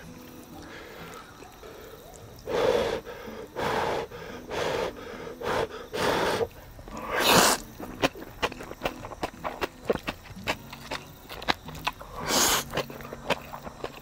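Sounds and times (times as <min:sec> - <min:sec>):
person breathing hard: 0:00.6 - 0:07.6.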